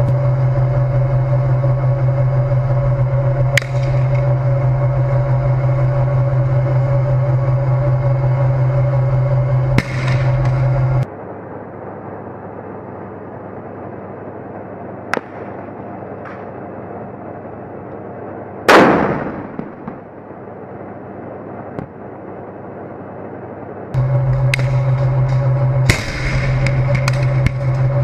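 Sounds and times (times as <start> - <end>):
sharp crack: 3.5 - 4.3, 9.8 - 10.7, 15.1 - 16.5, 18.7 - 20.1, 25.9 - 28.0
tank gun blast: 9.8 - 10.6, 18.7 - 20.1, 25.9 - 27.7.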